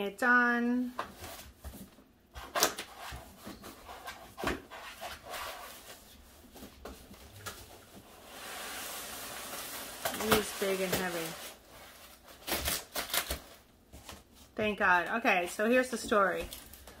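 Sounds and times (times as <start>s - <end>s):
cardboard box rustling and scraping: 8.0s - 12.2s.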